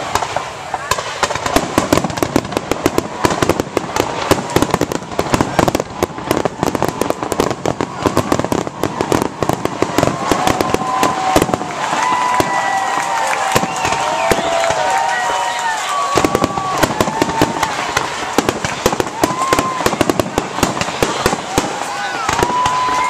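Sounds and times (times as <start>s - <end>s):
fireworks bangs and crackling: 0.0s - 23.0s.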